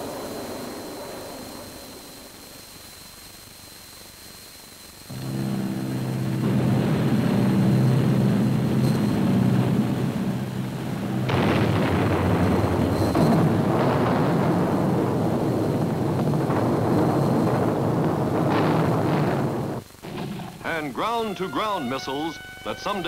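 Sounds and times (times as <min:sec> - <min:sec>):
propeller aircraft engines droning: 0:05.0 - 0:23.0
explosion: 0:05.1 - 0:20.9
rumbling blasts: 0:05.1 - 0:23.0.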